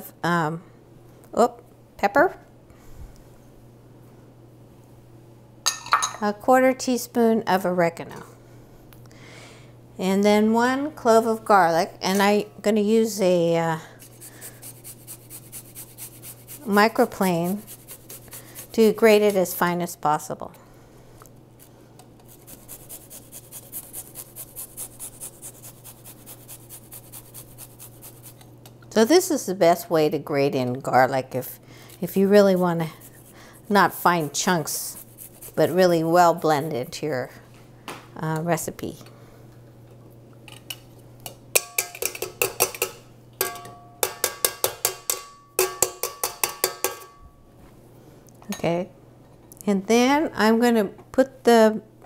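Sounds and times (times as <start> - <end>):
garlic grated on a rasp grater: 14.0 - 19.6, 22.3 - 28.4, 32.4 - 35.8
grater striking metal bowl: 41.6 - 47.2.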